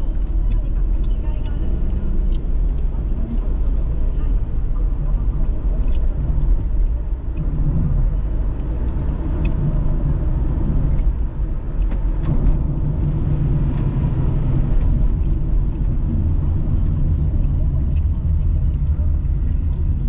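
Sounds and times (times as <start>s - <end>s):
faint light ticks: 0.0s - 16.0s
road and engine rumble in car: 0.0s - 20.0s.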